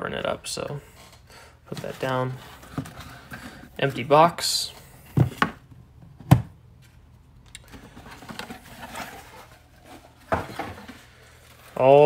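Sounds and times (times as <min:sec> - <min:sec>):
foam pads rustling: 0:07.7 - 0:12.0.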